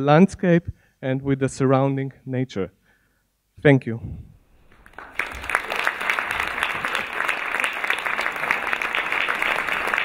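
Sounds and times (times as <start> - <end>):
audience applauding: 4.6 - 10.0.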